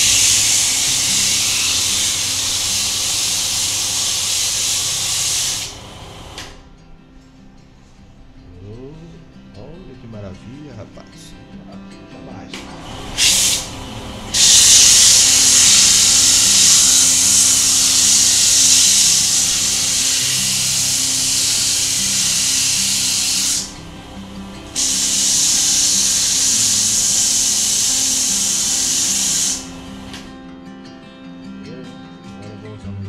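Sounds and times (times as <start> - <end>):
sandpaper hissing on spinning wood: 0.0 - 6.4, 12.9 - 30.3
slow background music: 0.0 - 33.0.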